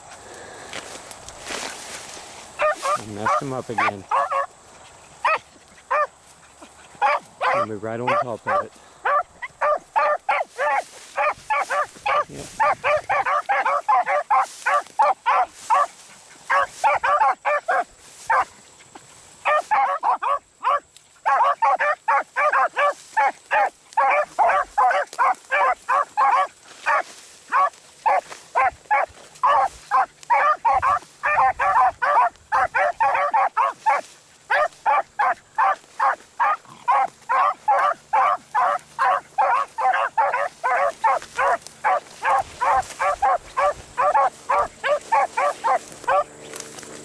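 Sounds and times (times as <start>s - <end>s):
hounds baying: 0.8s - 47.0s.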